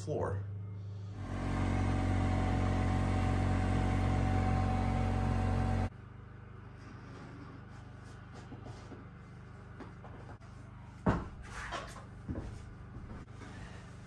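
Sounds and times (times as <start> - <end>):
small engine running: 1.1 - 5.9.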